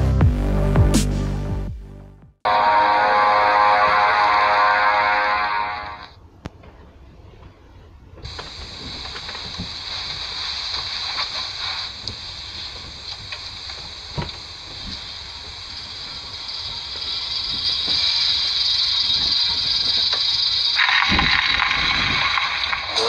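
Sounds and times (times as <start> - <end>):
record surface hiss: 2.5 - 23.0
record clicks and crackles: 6.0 - 23.0.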